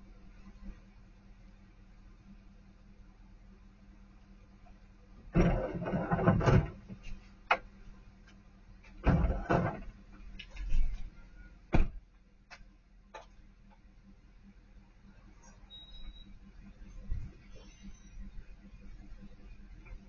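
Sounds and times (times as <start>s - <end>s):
objects clattering into truck bed: 5.4s - 7.0s, 9.0s - 10.0s
truck door shutting: 11.7s - 12.0s.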